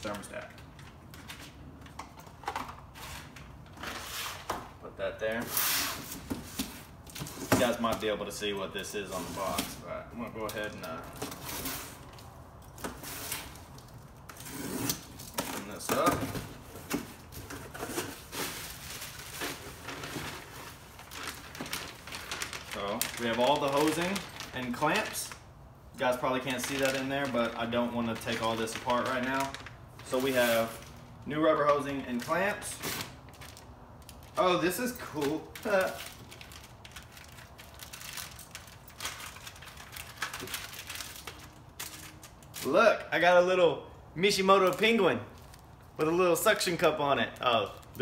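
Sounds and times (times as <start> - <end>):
plastic bags rustling: 5.4 - 42.8, 44.5 - 48.0
plastic packaging crinkling: 16.8 - 42.8, 44.6 - 48.0.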